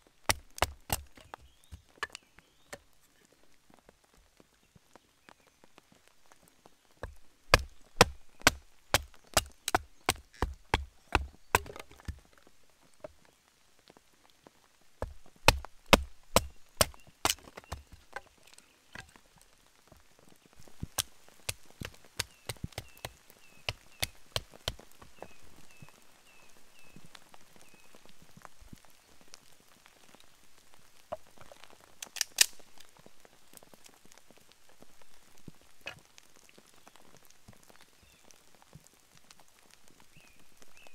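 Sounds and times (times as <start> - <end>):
faint rain: 0.0 - 40.9
wooden baton knocking on knife: 10.4 - 12.1.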